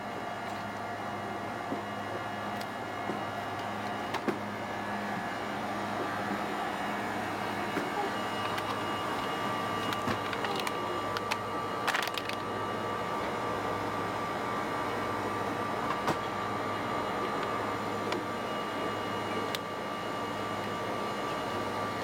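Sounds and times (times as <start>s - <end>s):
refrigerated cases humming: 0.0s - 22.0s
plastic bag crinkling: 8.3s - 12.5s.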